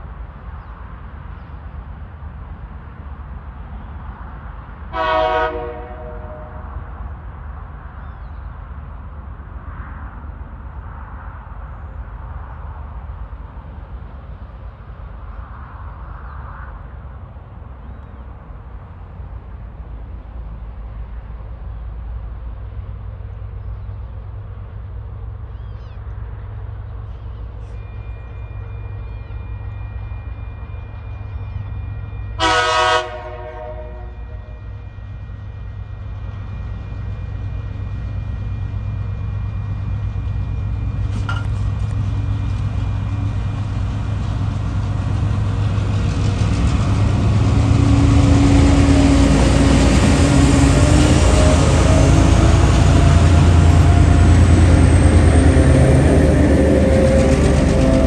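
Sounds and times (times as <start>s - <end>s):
diesel locomotive engine rumble: 0.0s - 58.0s
train horn blast: 4.9s - 6.9s, 27.6s - 35.0s, 50.4s - 58.0s.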